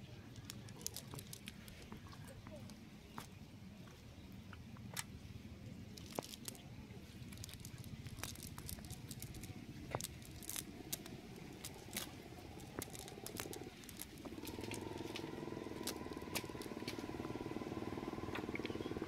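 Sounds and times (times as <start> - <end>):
faint engine drone: 0.0 - 19.0
wet fishing net crackling: 0.3 - 1.8, 6.0 - 18.5.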